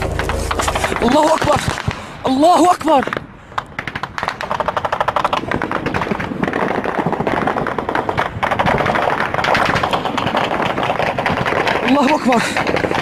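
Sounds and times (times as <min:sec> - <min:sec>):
automatic gunfire: 0:03.8 - 0:13.0.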